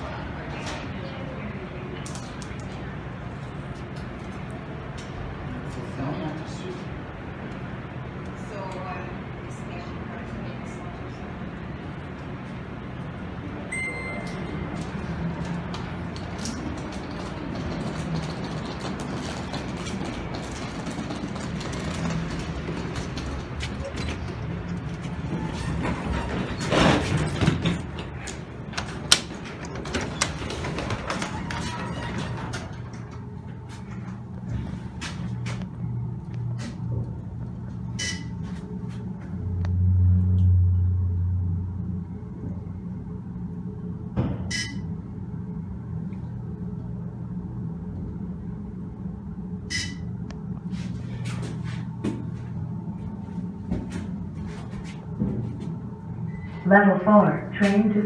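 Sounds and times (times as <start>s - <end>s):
elevator low hum: 0.0s - 58.0s
short electronic chimes: 13.7s - 14.6s
elevator doors sliding shut: 13.9s - 34.8s.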